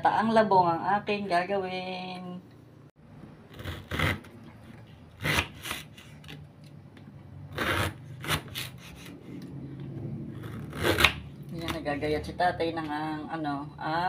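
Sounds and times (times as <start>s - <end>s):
knife cutting on wooden board: 5.2s - 6.4s, 7.5s - 9.5s, 10.4s - 11.7s.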